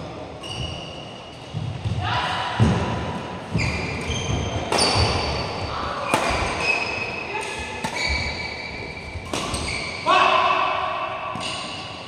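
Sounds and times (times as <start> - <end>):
shoes squeaking on court: 0.4 - 1.7, 3.5 - 5.5, 7.8 - 10.0
racket hitting shuttlecock: 4.7 - 5.3, 6.0 - 6.8, 7.4 - 8.3, 9.2 - 9.9.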